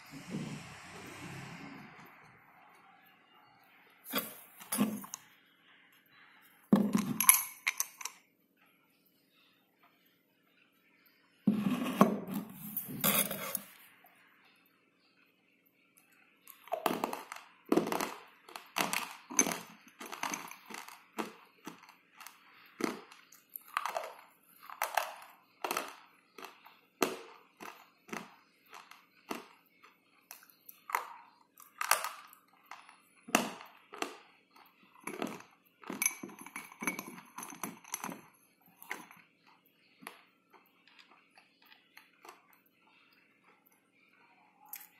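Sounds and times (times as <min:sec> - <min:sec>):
slate pencils being crunched: 0:16.5 - 0:29.6.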